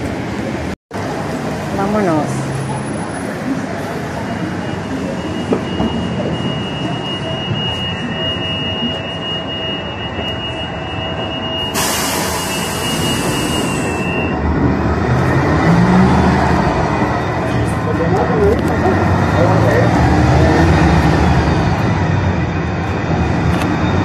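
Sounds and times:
bus engine rumble: 0.0s - 24.0s
pneumatic door air hiss: 11.7s - 14.0s.

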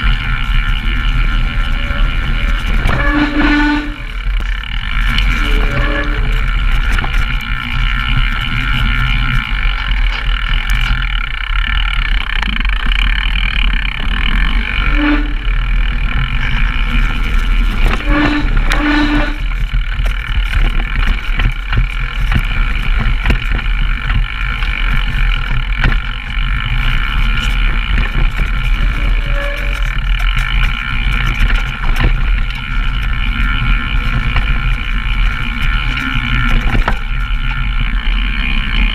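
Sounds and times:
bike rattling and clicking: 0.0s - 38.9s.

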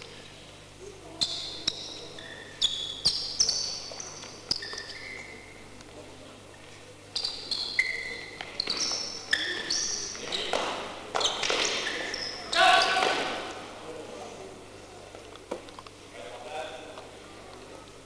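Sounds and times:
shoes squeaking on gym floor: 1.2s - 5.6s, 7.1s - 13.2s.

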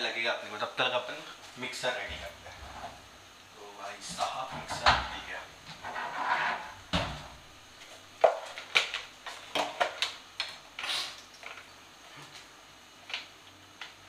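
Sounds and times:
knocks and clicks of kitchen handling: 4.5s - 5.2s, 6.9s - 7.4s.

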